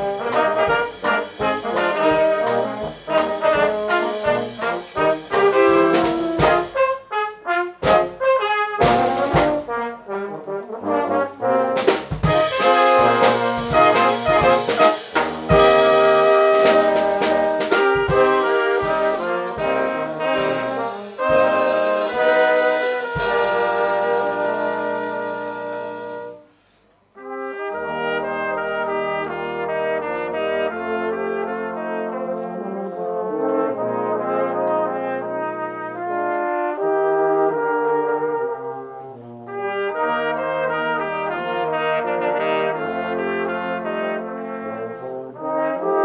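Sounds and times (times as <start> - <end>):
drum kit: 0.0 - 10.1, 11.0 - 26.4
brass band playing: 0.0 - 46.0.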